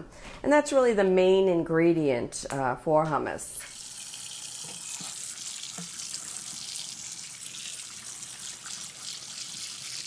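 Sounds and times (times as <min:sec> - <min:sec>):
tap water running into sink: 0:03.7 - 0:10.0.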